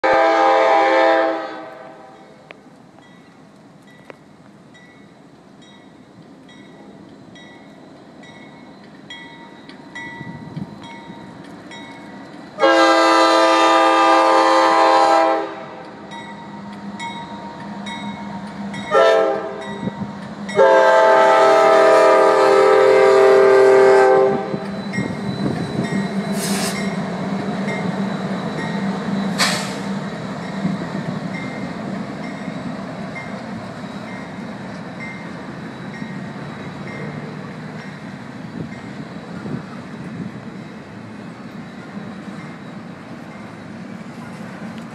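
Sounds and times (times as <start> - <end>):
locomotive air horn blasts: 0.0 - 2.2, 12.6 - 15.9, 18.9 - 19.7, 20.6 - 24.7
freight train rumbling past: 0.0 - 44.9.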